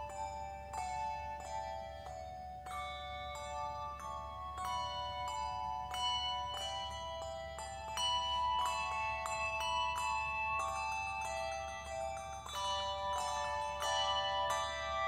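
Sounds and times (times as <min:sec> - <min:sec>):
handbell choir ringing: 0:00.0 - 0:15.0.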